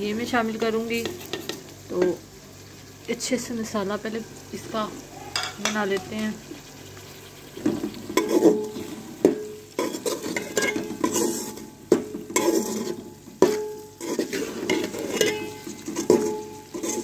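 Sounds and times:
frying sizzle: 0.0 - 17.0
metal spatula scraping pot: 5.3 - 17.0
spatula knocking on metal pot: 13.4 - 13.7.

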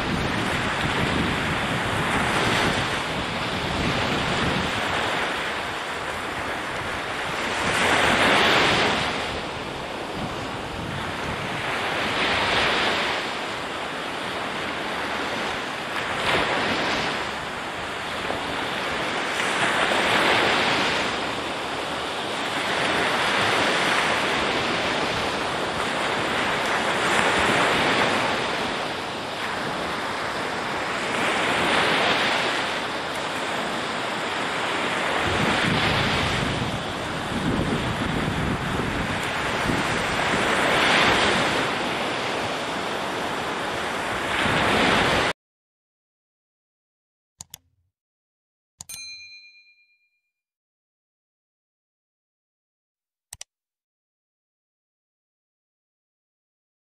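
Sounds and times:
waves breaking on shore: 0.0 - 45.4.

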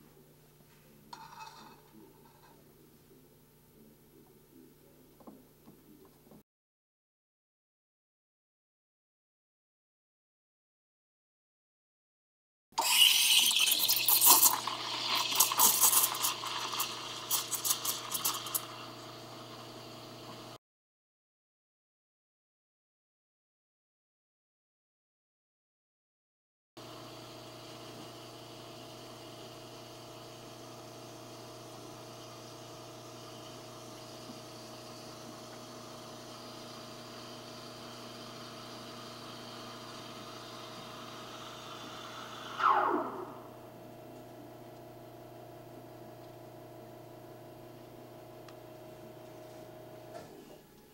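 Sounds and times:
steam wand hissing in milk: 12.8 - 20.1, 37.1 - 43.0.

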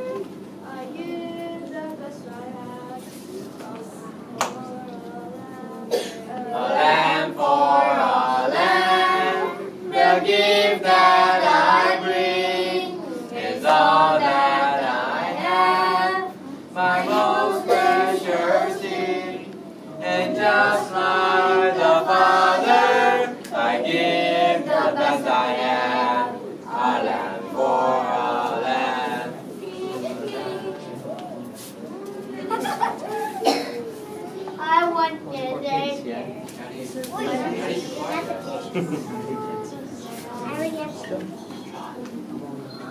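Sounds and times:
group of voices singing: 0.0 - 31.2.

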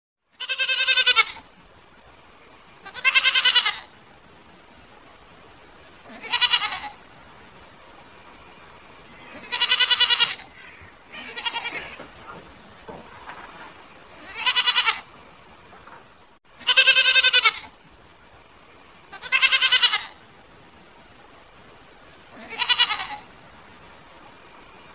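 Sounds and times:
goats bleating: 0.4 - 1.4, 2.8 - 3.9, 6.1 - 7.0, 9.2 - 16.0, 19.1 - 20.2, 22.4 - 23.3.

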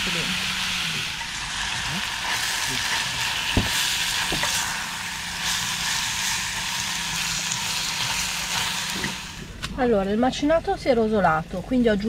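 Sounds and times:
meat sizzling in a pot: 0.0 - 9.6.

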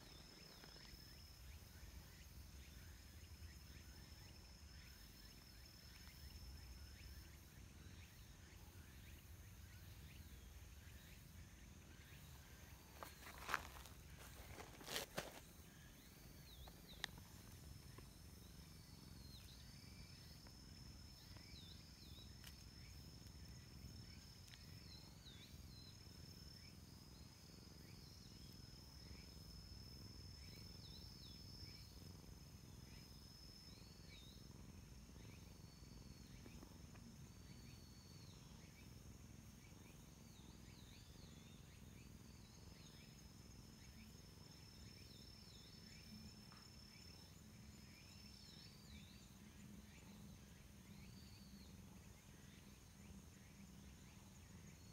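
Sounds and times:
insect buzzing: 0.0 - 54.9.

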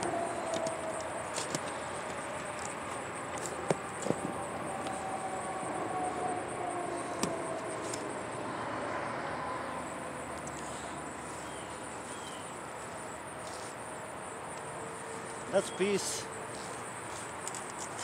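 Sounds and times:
insects chirring: 0.0 - 18.0
passing traffic hum: 0.0 - 18.0.

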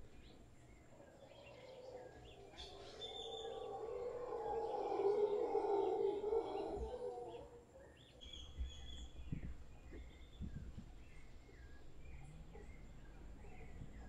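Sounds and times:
birds chirping and whistling: 0.7 - 14.0
howler monkey howling: 1.0 - 8.0.

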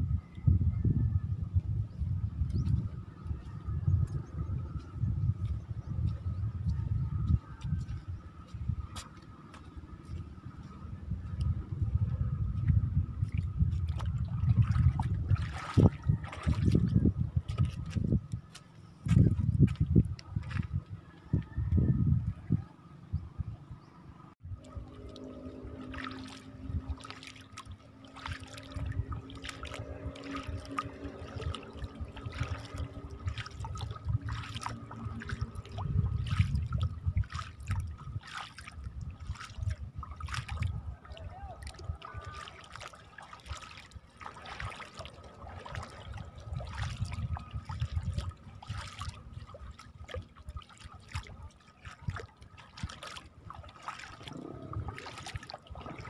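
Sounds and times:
low rumble: 0.0 - 18.3, 24.4 - 38.2, 54.2 - 56.0
seawater trickling and splashing: 7.1 - 22.9, 24.4 - 56.0.

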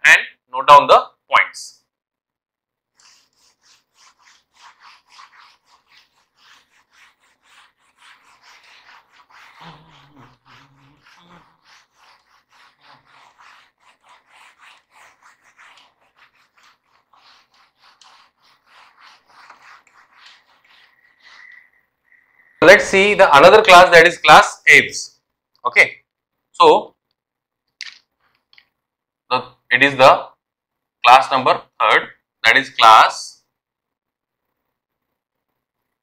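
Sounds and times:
eraser rubbing on whiteboard: 2.9 - 24.1.

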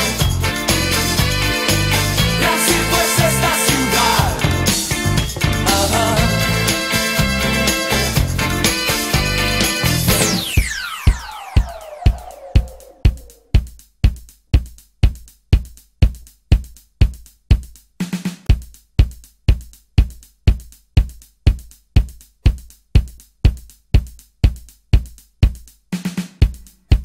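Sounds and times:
programmed drum beat: 0.0 - 27.0
low-toned drum fill: 2.2 - 7.4, 10.2 - 14.2.

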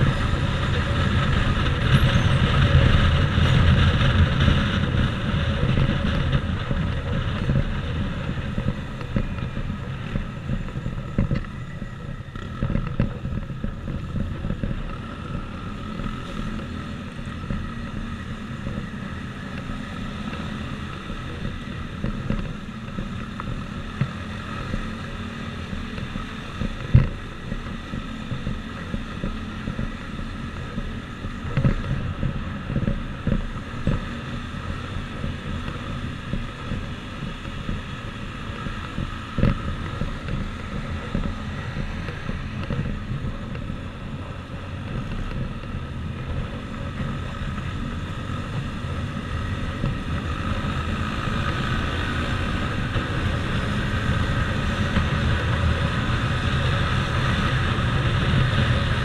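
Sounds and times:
wind noise on microphone: 0.0 - 24.0
motorcycle engine running: 0.0 - 59.0.

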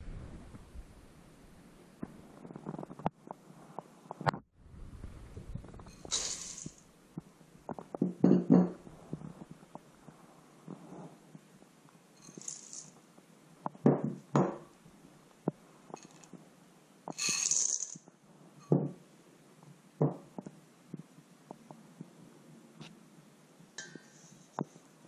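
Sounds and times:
chocolate chips rattling into bowl: 6.1 - 6.8, 12.2 - 13.0, 17.2 - 18.0
glass bowls knocking on steel bowl: 8.0 - 8.8.

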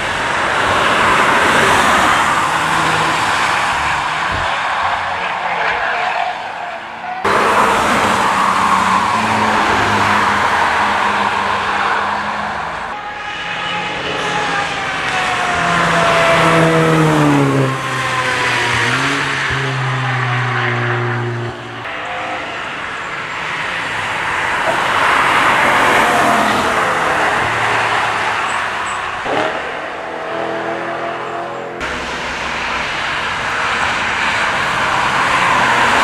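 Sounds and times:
tyres rushing on wet tarmac: 0.0 - 21.0, 31.8 - 36.0
car engines passing: 0.0 - 36.0.

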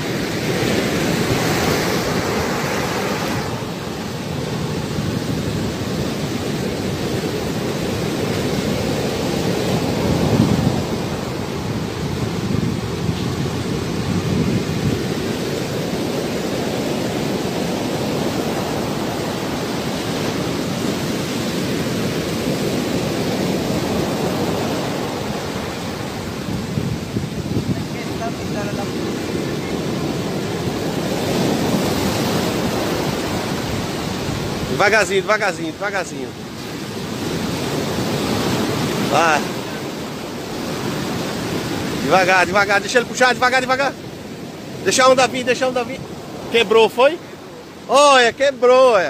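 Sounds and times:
wind on microphone: 0.0 - 35.1
ocean surf breaking: 0.0 - 49.0.

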